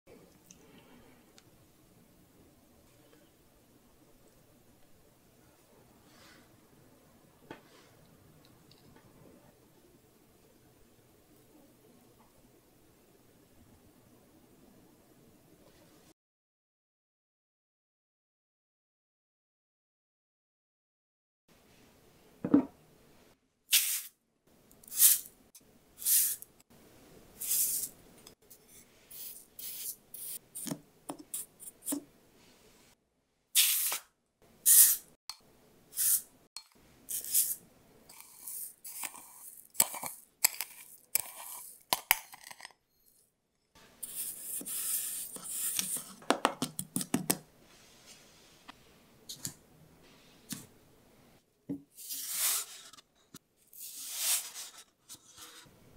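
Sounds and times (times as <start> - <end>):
spoon scooping granulated sugar: 24.8 - 25.3, 26.0 - 26.5, 27.4 - 32.0, 35.9 - 43.2, 44.0 - 46.2, 52.0 - 53.0, 53.7 - 55.7
sugar pouring into paper cups: 37.1 - 42.6, 44.0 - 46.2.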